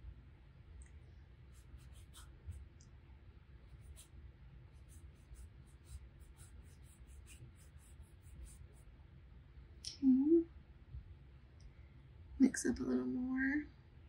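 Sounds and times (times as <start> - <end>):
paintbrush scratching on paper: 1.4 - 2.7, 3.7 - 8.9.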